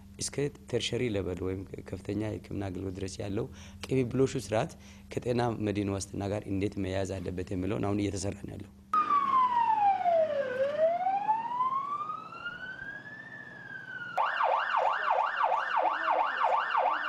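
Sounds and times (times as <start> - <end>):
ambulance siren wailing and yelping: 9.0 - 17.0.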